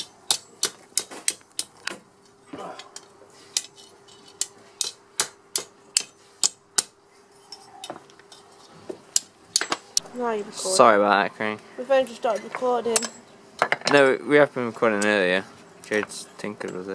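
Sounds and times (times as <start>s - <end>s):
faint steady hum: 0.0s - 16.9s.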